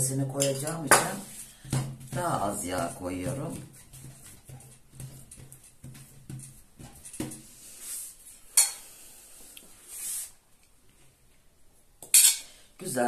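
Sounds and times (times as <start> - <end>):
hands patting dough: 0.4 - 7.6
soft swishes of scooping: 9.4 - 10.4.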